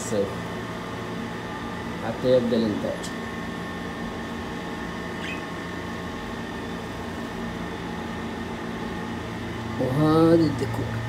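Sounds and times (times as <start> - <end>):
air conditioner humming: 0.0 - 11.0
faint bird chirp: 5.2 - 5.6.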